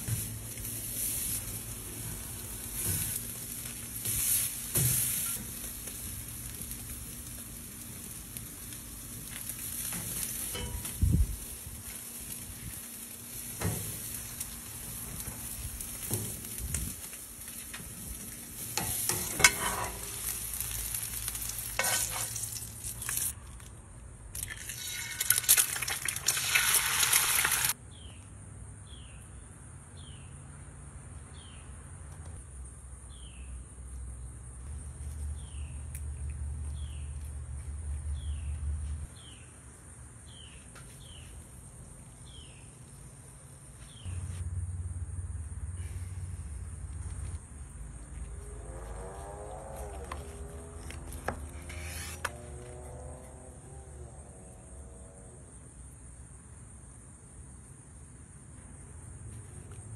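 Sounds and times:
steaks sizzling on a grill: 0:00.0 - 0:23.3, 0:24.7 - 0:27.8.

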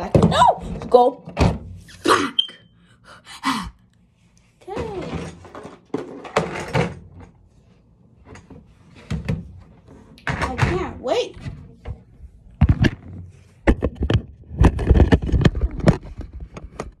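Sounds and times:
thumps and knocks: 0:08.3 - 0:17.0.

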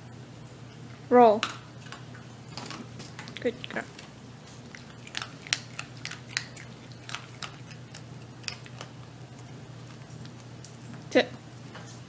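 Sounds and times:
dog crunching a treat: 0:01.8 - 0:10.9.

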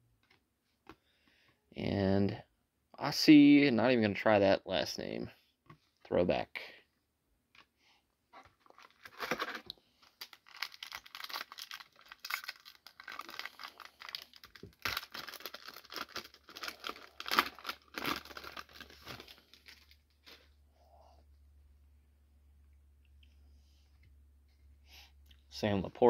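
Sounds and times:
foil wrapper crinkling and tearing: 0:08.6 - 0:20.4.

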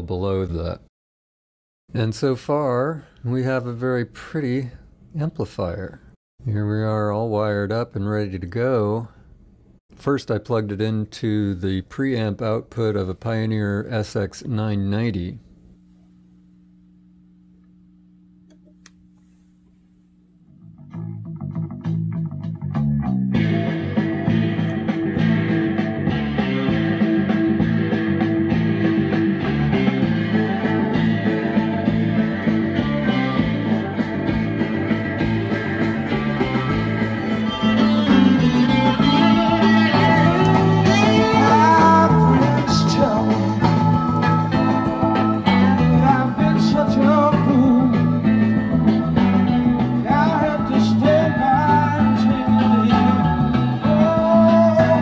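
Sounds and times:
rock song with guitar: 0:21.0 - 0:55.0
person singing: 0:36.2 - 0:43.9, 0:45.4 - 0:48.4, 0:50.0 - 0:55.0.

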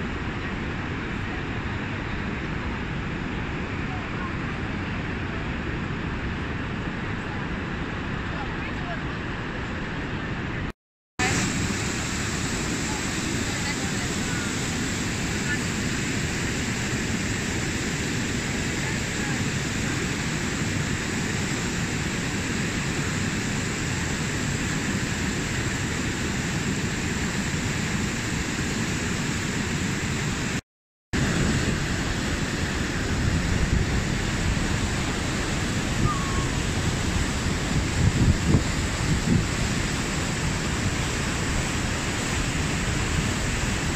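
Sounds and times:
whitewater rushing over waterfall: 0:00.0 - 0:30.6, 0:31.2 - 0:43.9
wind knocking on microphone: 0:35.9 - 0:39.8.

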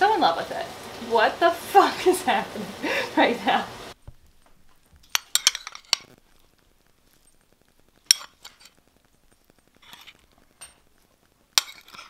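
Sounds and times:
metal spoon clinking on bowl: 0:05.1 - 0:06.1, 0:08.1 - 0:08.7, 0:11.6 - 0:12.0
spoon scraping bowl: 0:05.1 - 0:06.1, 0:08.1 - 0:08.8, 0:09.8 - 0:10.2, 0:11.6 - 0:12.0.

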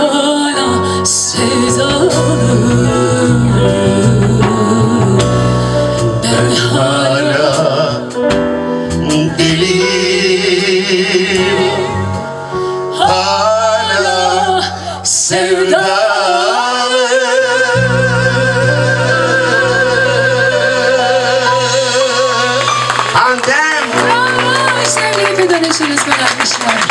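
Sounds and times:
woman singing: 0:00.0 - 0:07.9, 0:13.0 - 0:22.7, 0:24.0 - 0:26.9
man singing: 0:00.0 - 0:24.1
live band with drums and keyboard: 0:00.0 - 0:26.9.

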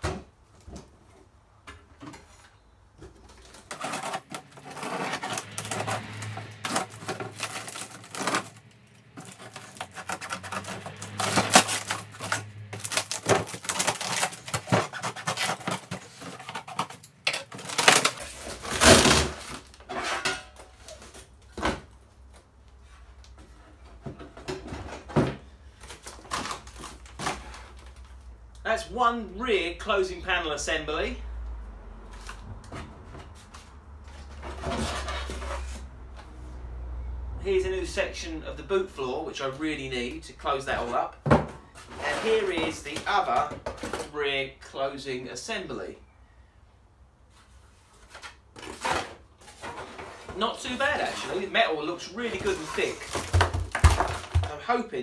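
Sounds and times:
cardboard tearing and rustling: 0:03.4 - 0:19.8, 0:25.7 - 0:28.2, 0:47.9 - 0:54.6
packing tape ripping: 0:03.7 - 0:19.8, 0:25.8 - 0:28.0.

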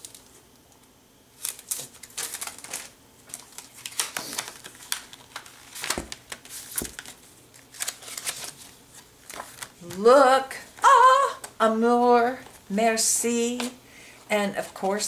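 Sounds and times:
packaging rustling and crinkling: 0:01.4 - 0:10.0.

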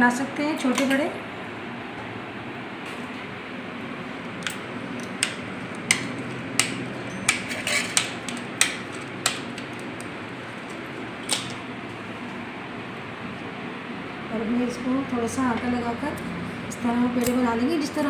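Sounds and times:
steady hum: 0:00.0 - 0:18.0
spoon chopping dough on worktop: 0:05.1 - 0:09.8.

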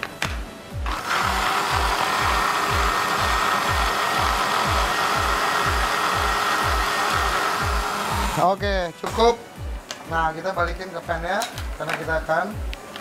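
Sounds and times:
background music with beat: 0:00.0 - 0:13.0
blender running: 0:00.8 - 0:08.4.

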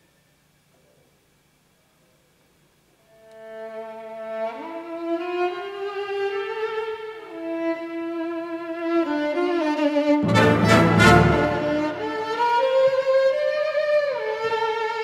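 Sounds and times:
violin playing slow held notes: 0:06.6 - 0:14.7.

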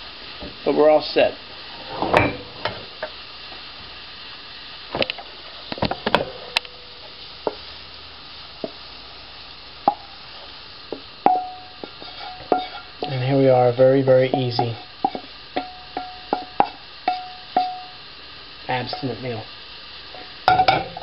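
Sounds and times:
food sizzling in skillet: 0:00.0 - 0:21.0
wooden spatula scraping pan: 0:11.8 - 0:13.1.

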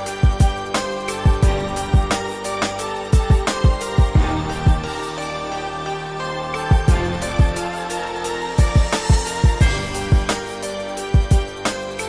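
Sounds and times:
booming bass drum beat: 0:00.2 - 0:04.9, 0:06.7 - 0:07.7, 0:08.6 - 0:10.5, 0:11.2 - 0:11.6
sustained pitched tones: 0:04.2 - 0:10.6.

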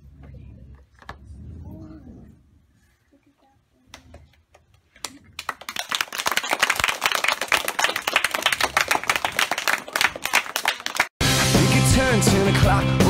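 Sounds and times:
children clapping: 0:03.9 - 0:11.6.

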